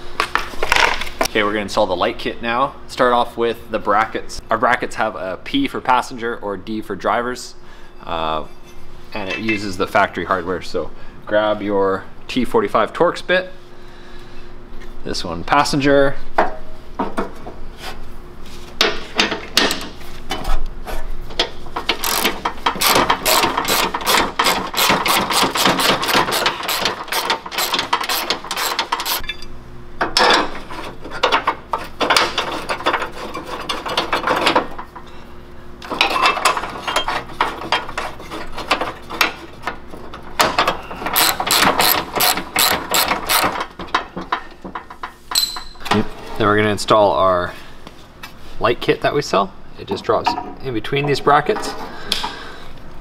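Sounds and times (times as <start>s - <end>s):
hand ratchet clicking: 21.9s - 29.2s, 41.1s - 43.6s.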